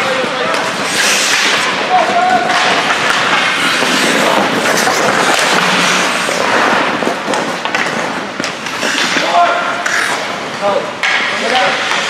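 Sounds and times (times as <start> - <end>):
crowd noise: 0.0 - 12.0
skates on ice: 0.0 - 12.0
sticks and puck clicking: 2.4 - 10.3, 11.0 - 12.0.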